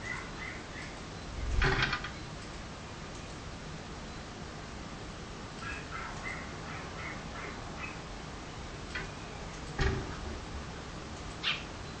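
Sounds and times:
thump against window: 9.8 - 10.2
sparrow chirping: 11.4 - 11.7.

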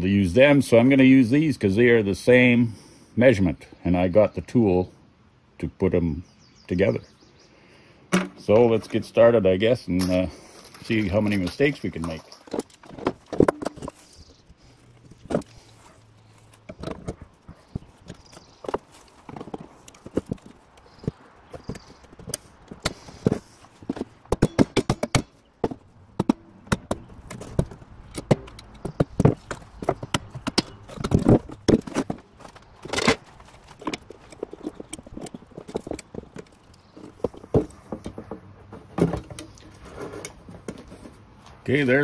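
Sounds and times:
tools and metal parts clattering: 9.9 - 41.3.

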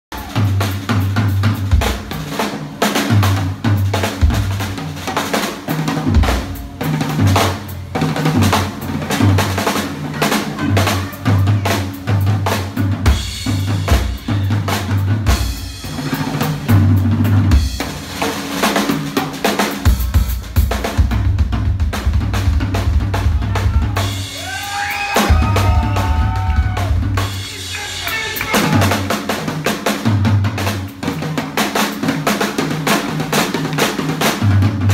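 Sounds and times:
drum solo on drum kit: 0.1 - 34.9.

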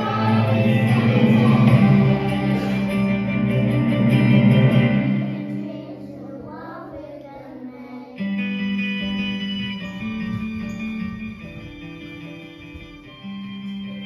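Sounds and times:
group singing long notes: 0.0 - 3.6.

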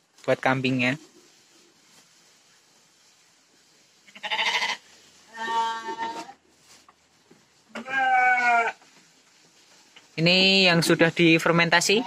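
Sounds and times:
sheep bleating: 4.1 - 6.3, 7.7 - 8.8.

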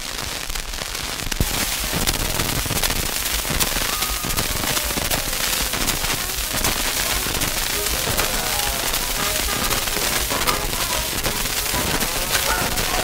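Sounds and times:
record surface hiss: 0.0 - 13.0.

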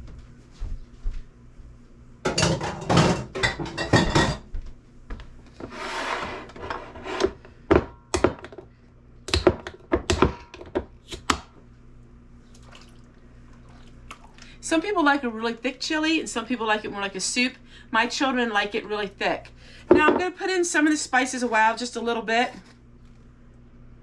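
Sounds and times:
glass jars and utensils clattering: 2.3 - 4.4.

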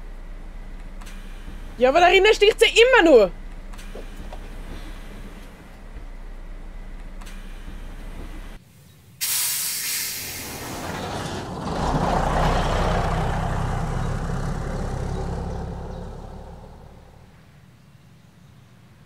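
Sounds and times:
bus diesel engine pulling away: 0.0 - 8.6, 9.2 - 18.5
air brakes hissing: 1.0 - 1.8, 3.7 - 6.0, 7.2 - 8.6, 9.2 - 11.8.

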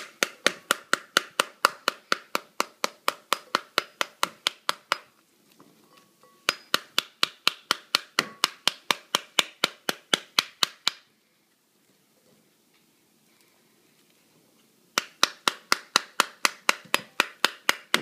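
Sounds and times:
metal spoon tapping pomegranate: 6.0 - 10.8.

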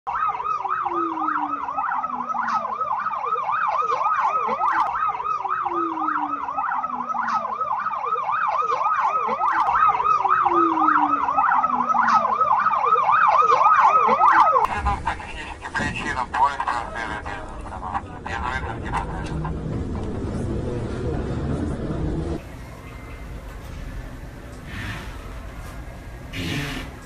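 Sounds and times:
emergency siren yelping: 0.1 - 14.8.

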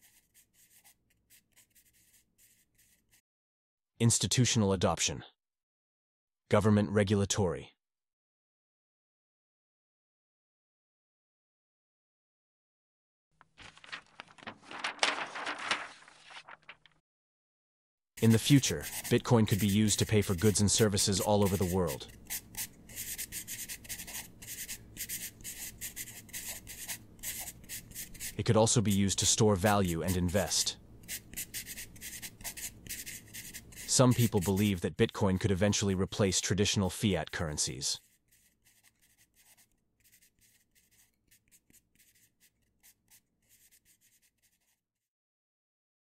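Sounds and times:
pencil scratching on paper: 0.0 - 3.2, 18.2 - 45.1.

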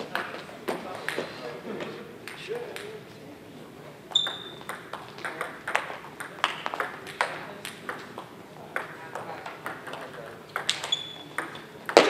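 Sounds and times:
table tennis ball ticking: 4.1 - 12.0.

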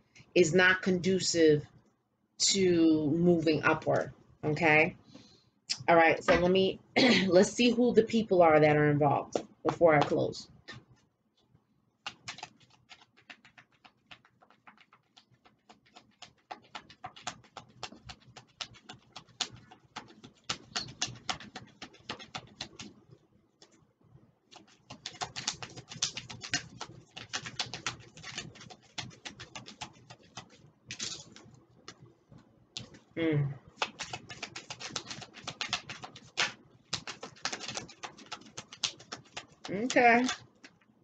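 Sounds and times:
cards being shuffled: 12.0 - 23.0, 24.5 - 32.0, 32.8 - 33.0, 33.8 - 40.8.

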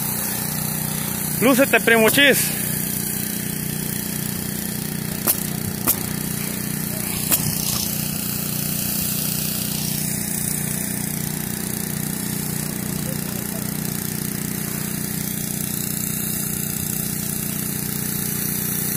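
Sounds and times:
pneumatic nailer shots: 0.0 - 12.9
small engine running: 0.0 - 18.9.

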